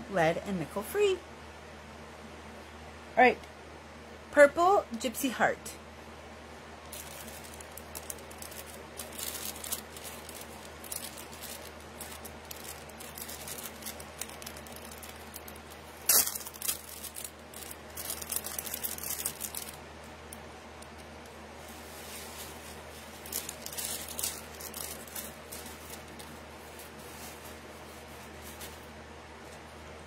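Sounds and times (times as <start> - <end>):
jewelry clicking and rustling: 6.9 - 19.8, 23.0 - 27.4.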